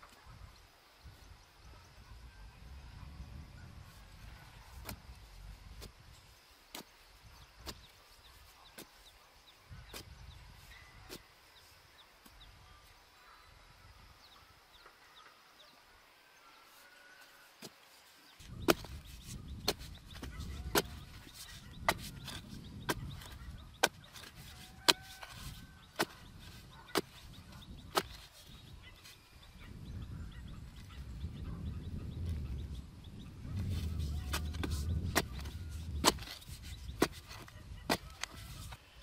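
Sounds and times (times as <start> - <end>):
digging blade crunching into soil: 4.7 - 9.1, 18.4 - 29.3, 33.6 - 38.9.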